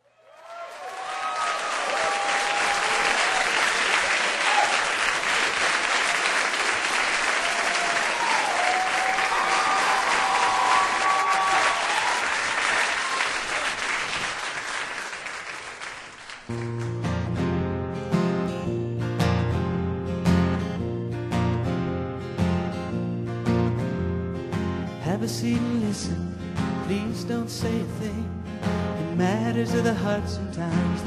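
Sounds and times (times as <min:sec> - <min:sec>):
audience applauding and cheering: 0:00.0 - 0:17.1
acoustic guitar strumming: 0:16.6 - 0:31.0.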